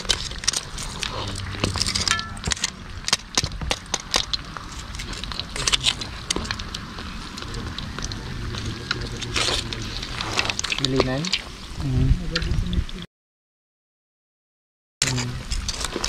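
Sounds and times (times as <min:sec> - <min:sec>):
oil crackling and spattering: 0:00.0 - 0:11.8.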